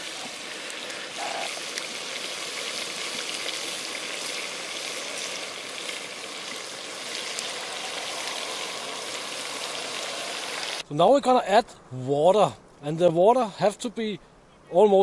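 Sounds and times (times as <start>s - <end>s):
meat sizzling in oil: 0.0s - 10.8s.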